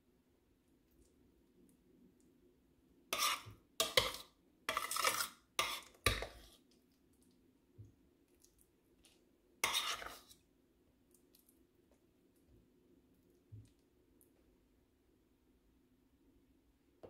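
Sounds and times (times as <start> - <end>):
metal spoon scraping bowl: 3.1 - 6.5, 9.6 - 10.4.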